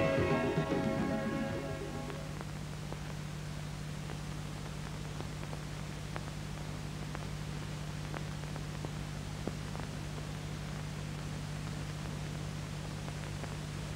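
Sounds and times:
low hum: 0:00.0 - 0:03.4
tape hiss: 0:00.0 - 0:13.9.

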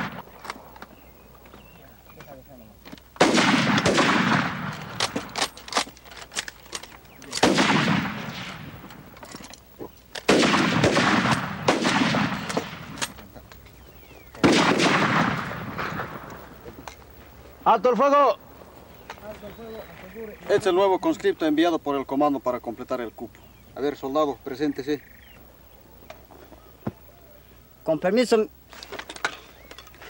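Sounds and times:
single rifle shots cracking: 0:00.0 - 0:01.1, 0:03.1 - 0:17.2
rifle volleys: 0:03.2 - 0:09.2.

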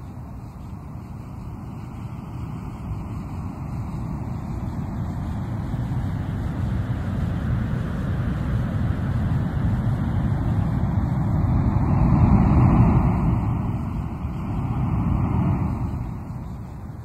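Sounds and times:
ocean surf: 0:10.0 - 0:17.0.

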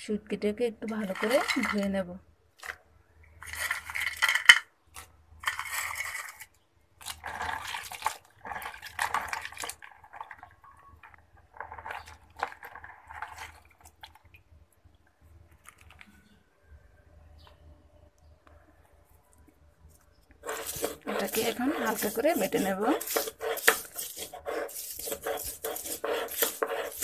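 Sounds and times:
water sloshing in a plastic basin: 0:07.0 - 0:14.6.

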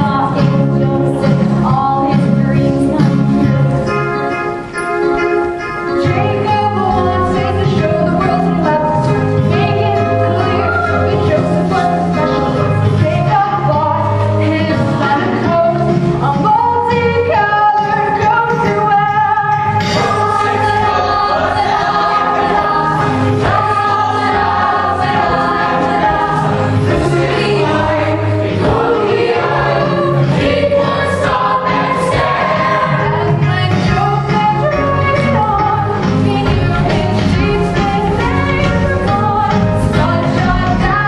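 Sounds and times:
instrumental accompaniment: 0:00.0 - 0:41.0
ensemble singing in chorus: 0:19.8 - 0:34.4, 0:35.4 - 0:41.0.

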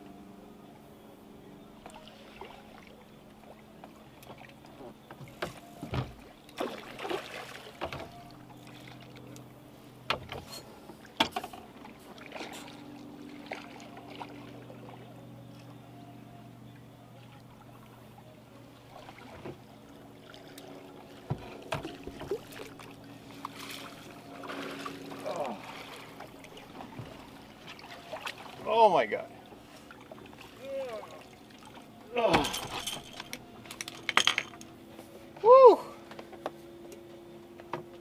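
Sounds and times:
faint steady hum: 0:00.0 - 0:38.0
knocks and clatter on a boat: 0:01.8 - 0:15.9, 0:18.8 - 0:30.5, 0:31.6 - 0:38.0
water splashing: 0:06.2 - 0:09.3, 0:11.8 - 0:15.0, 0:18.8 - 0:33.3.

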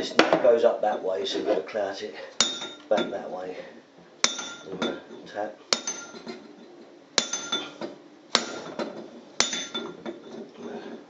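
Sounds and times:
hammer striking chisel on metal: 0:02.4 - 0:03.1, 0:04.2 - 0:05.0, 0:05.7 - 0:06.4, 0:07.2 - 0:07.7, 0:08.3 - 0:10.2.

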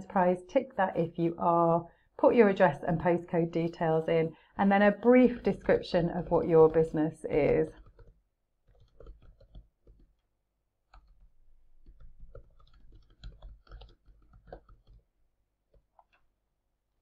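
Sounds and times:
typing on computer keyboard: 0:05.0 - 0:10.3, 0:10.9 - 0:15.1.

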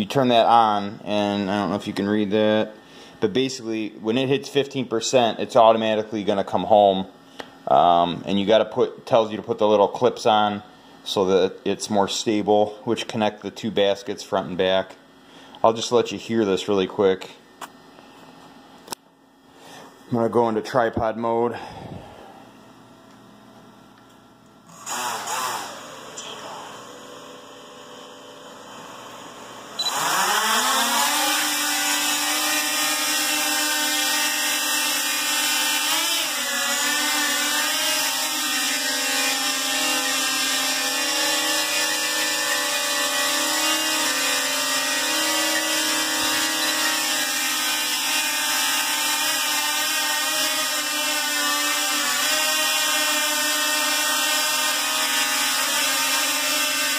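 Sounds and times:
drone motors whining: 0:28.7 - 0:56.9.

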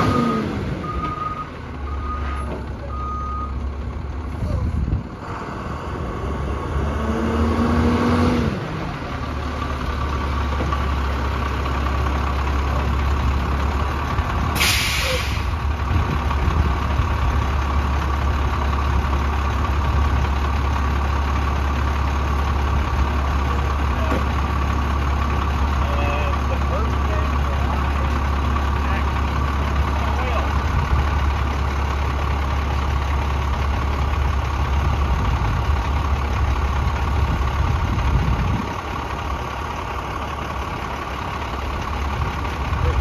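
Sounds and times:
diesel bus engine: 0:00.0 - 0:43.0
air brake hiss: 0:14.6 - 0:15.5.

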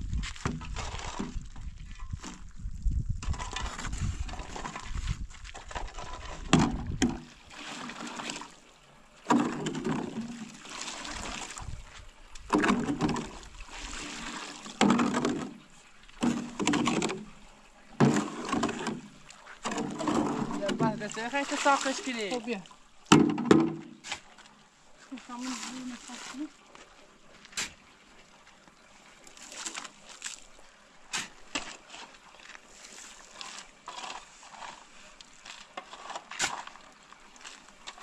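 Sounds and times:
shovels scraping wet cement: 0:00.2 - 0:01.5, 0:03.2 - 0:08.6, 0:09.3 - 0:11.7, 0:12.4 - 0:17.4, 0:18.0 - 0:22.6, 0:23.8 - 0:24.5, 0:25.1 - 0:26.5, 0:27.4 - 0:27.8, 0:29.3 - 0:30.5, 0:31.1 - 0:38.0
shovel slapping cement mix: 0:00.2 - 0:01.6, 0:03.2 - 0:08.6, 0:09.3 - 0:11.8, 0:12.4 - 0:15.6, 0:16.2 - 0:17.3, 0:18.0 - 0:22.6, 0:25.3 - 0:26.5, 0:27.5 - 0:27.8, 0:29.4 - 0:30.5, 0:31.1 - 0:38.0.

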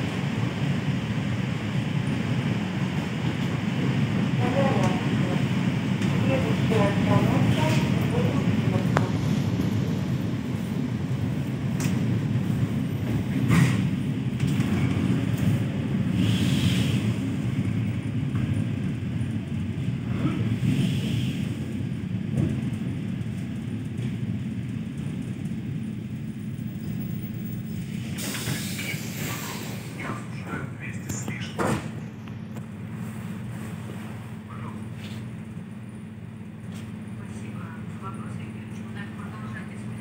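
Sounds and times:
train wheels rumbling: 0:00.0 - 0:40.0
hiss: 0:16.1 - 0:17.1, 0:28.2 - 0:30.0.

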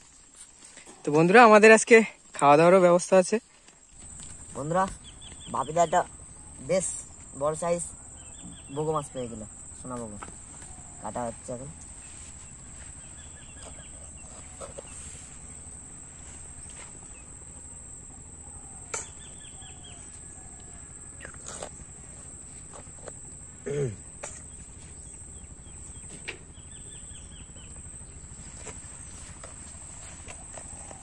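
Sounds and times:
insects droning: 0:00.0 - 0:31.0
bird chirps: 0:04.0 - 0:20.5, 0:24.3 - 0:31.0.

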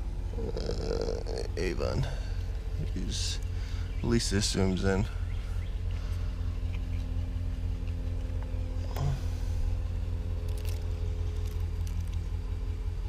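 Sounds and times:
engine idling: 0:00.0 - 0:13.0
faint steady tones hum: 0:00.0 - 0:13.0.

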